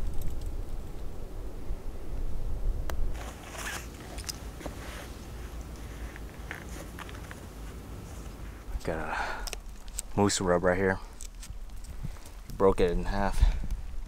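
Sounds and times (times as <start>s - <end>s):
wind rumble on microphone: 0.0s - 3.5s, 11.4s - 14.0s
faint crackles and rustles: 2.9s - 14.0s.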